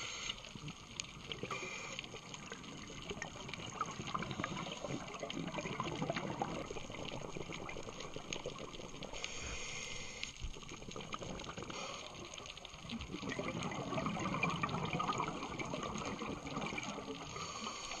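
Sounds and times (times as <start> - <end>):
regulator hiss: 0.0 - 0.5, 9.1 - 10.4.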